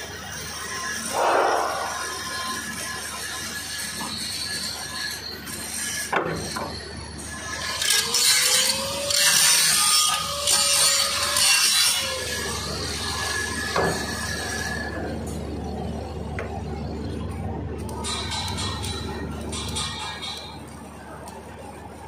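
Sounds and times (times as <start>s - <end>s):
angle grinder grinding metal: 0.7s - 6.6s, 7.2s - 15.0s.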